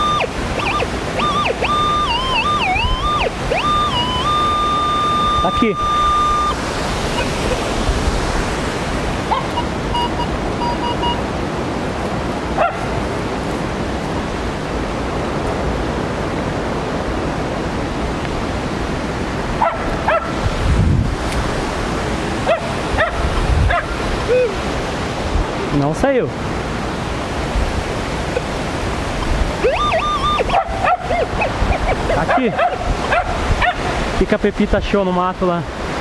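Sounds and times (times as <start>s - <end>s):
metal detector short beeps: 0.0s - 6.6s, 9.5s - 11.2s
dog yipping and barking: 0.0s - 7.7s, 9.2s - 11.1s, 12.5s - 13.0s, 19.6s - 20.4s, 22.4s - 24.6s, 29.1s - 33.9s
waterfall rushing: 0.0s - 36.0s.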